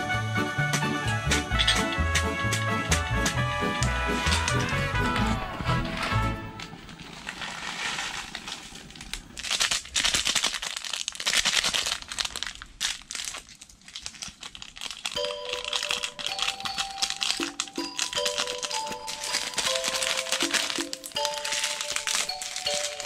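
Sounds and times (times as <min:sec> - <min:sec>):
background music: 0:00.0 - 0:06.9, 0:15.2 - 0:23.0
packet tearing open: 0:03.8 - 0:23.0
plastic packets crinkling: 0:03.8 - 0:23.0.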